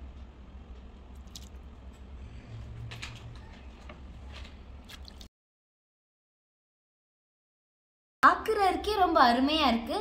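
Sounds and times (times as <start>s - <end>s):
low steady hum: 0.0s - 5.3s.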